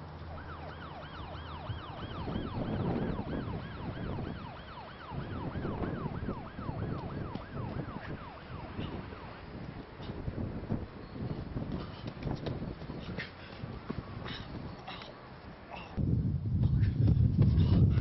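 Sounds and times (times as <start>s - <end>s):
siren on fast yelp: 0.3s - 9.4s.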